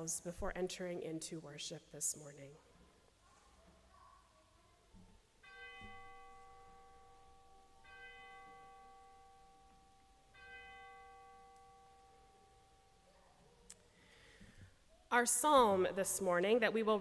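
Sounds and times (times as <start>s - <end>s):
bell ringing: 5.4s - 13.1s.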